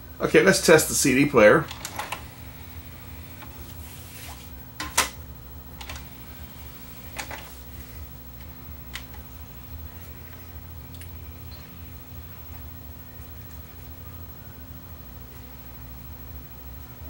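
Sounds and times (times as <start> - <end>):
steady low hum: 0.0 - 17.0
cd tray clicks and clunks: 1.6 - 2.4, 4.8 - 6.2, 7.1 - 7.5, 8.4 - 9.3.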